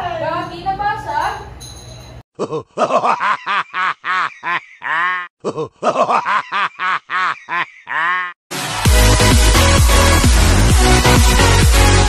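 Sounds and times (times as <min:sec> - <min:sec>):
short ha-ha laughs: 0:02.4 - 0:08.4.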